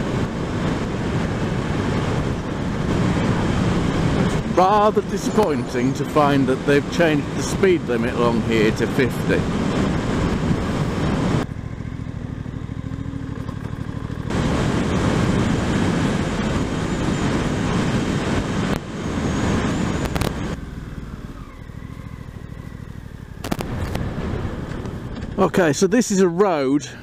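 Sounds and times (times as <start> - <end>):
wind rush: 0.0 - 11.5, 14.1 - 20.6, 23.4 - 25.4.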